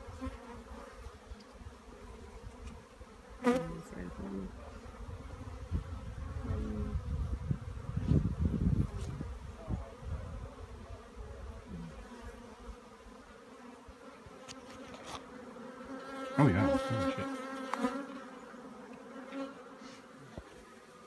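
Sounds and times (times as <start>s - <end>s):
single bee buzzing past: 0.0s - 21.0s
swarm of bees buzzing: 0.0s - 21.0s.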